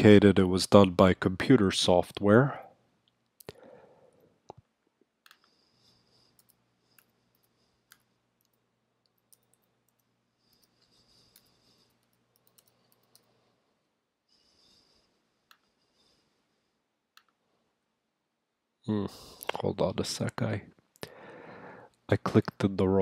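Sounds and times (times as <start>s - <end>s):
keyboard typing clicks: 5.2s - 5.5s, 6.3s - 13.3s.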